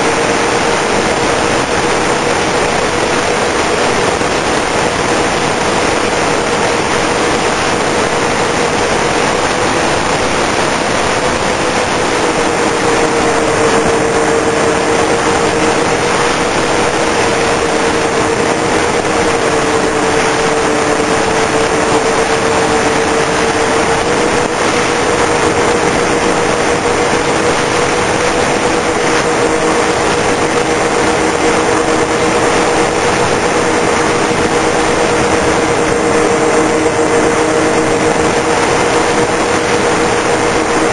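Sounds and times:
electric motors whining: 0.0s - 40.9s
wind rush over microphone: 0.0s - 40.9s.

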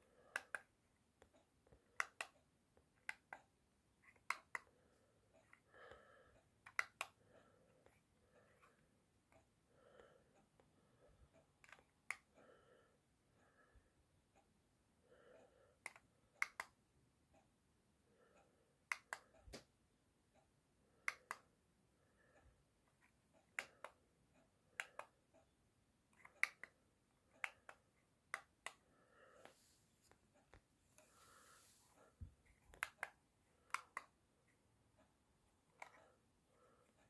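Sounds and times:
plastic remote buttons clicking: 1.9s - 2.4s.

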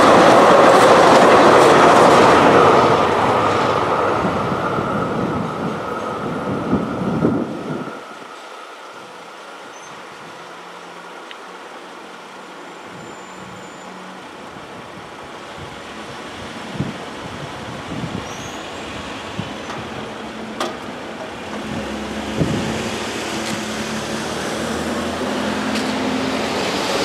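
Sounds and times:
cars and truck driving: 17.9s - 27.0s.

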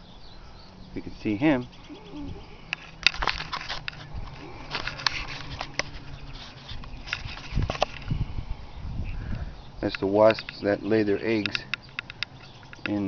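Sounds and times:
crunching in dry grass: 1.2s - 8.4s.

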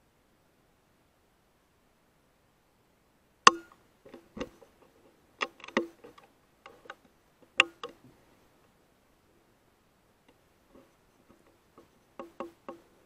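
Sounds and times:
rifle clicks and knocks: 3.5s - 8.0s, 11.3s - 12.9s.

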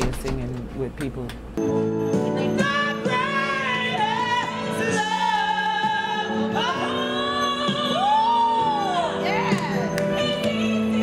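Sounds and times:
woman and man singing duet: 2.4s - 11.0s.

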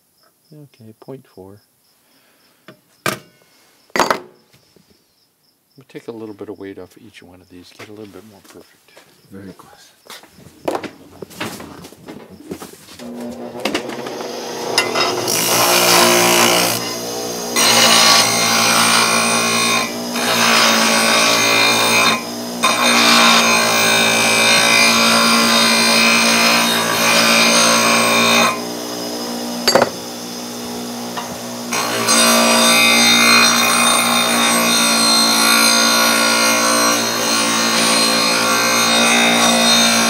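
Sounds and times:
bench grinder humming: 10.6s - 40.0s
metal rod grinding on wheel: 12.9s - 28.7s, 29.6s - 30.2s, 31.1s - 40.0s.

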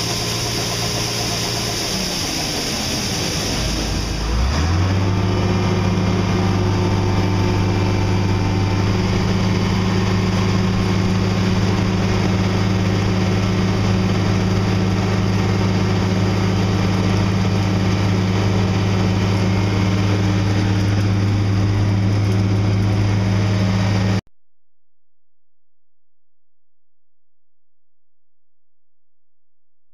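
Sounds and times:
combine engine droning: 0.0s - 24.2s.

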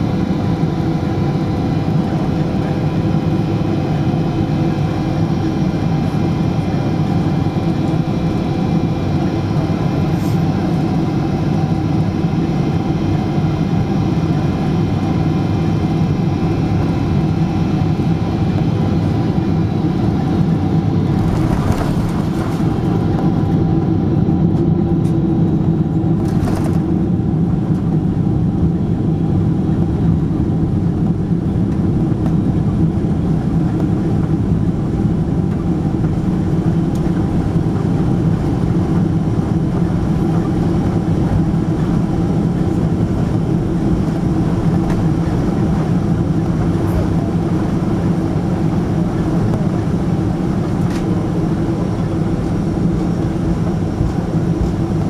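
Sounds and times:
aircraft engine drone: 0.0s - 55.0s.

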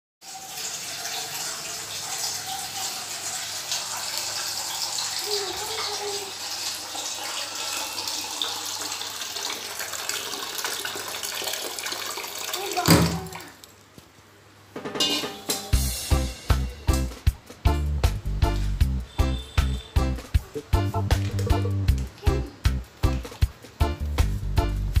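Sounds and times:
water running into a steel bowl: 0.2s - 13.7s.

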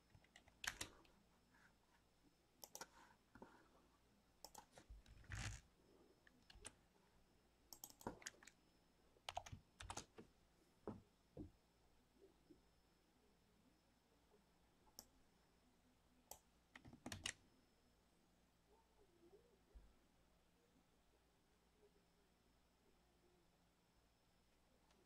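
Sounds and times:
computer keyboard typing: 0.0s - 1.1s, 2.6s - 3.0s, 4.4s - 5.6s, 6.3s - 6.8s, 7.7s - 8.6s, 9.3s - 10.2s, 16.3s - 17.4s.

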